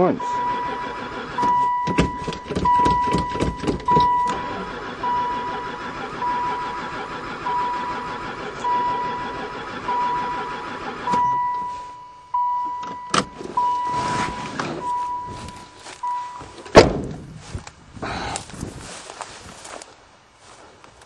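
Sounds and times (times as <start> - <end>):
dashboard chime beeping: 0.1 - 5.6, 7.5 - 9.3, 11.1 - 16.6
starter cranking engine: 0.4 - 11.5.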